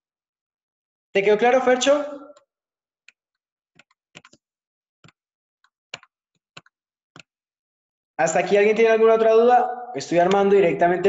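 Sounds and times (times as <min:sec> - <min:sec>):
computer mouse clicking: 0:03.8 - 0:04.4, 0:05.9 - 0:07.3.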